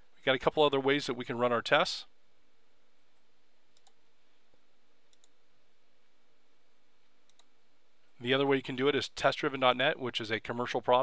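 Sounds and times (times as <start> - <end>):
low steady hiss: 0.0 - 11.0
computer mouse clicking: 3.7 - 4.0, 5.1 - 5.4, 7.3 - 7.5.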